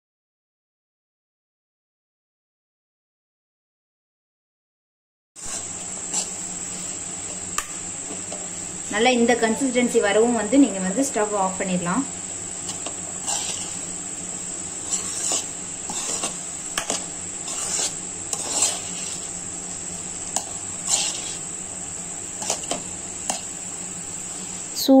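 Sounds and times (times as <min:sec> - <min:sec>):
spatula scraping a pan: 0:05.4 - 0:08.8, 0:12.2 - 0:24.8
steady high whine: 0:05.4 - 0:25.0.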